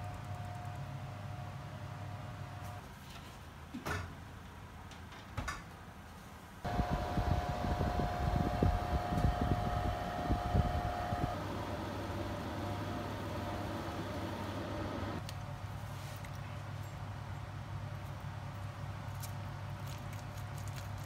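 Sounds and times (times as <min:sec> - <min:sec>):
oven humming: 0:06.6 - 0:15.2
low rumbling: 0:06.7 - 0:15.2.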